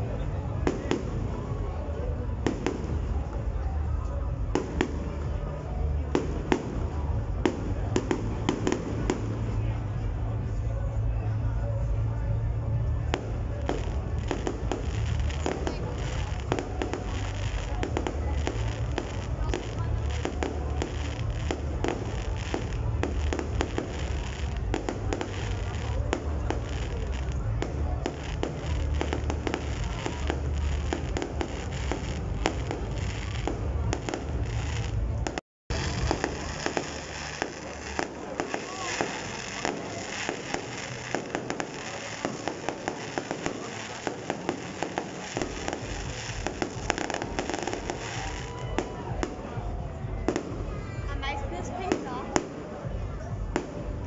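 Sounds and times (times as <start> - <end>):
fireworks bangs and pops: 0.0 - 10.7, 12.8 - 54.0.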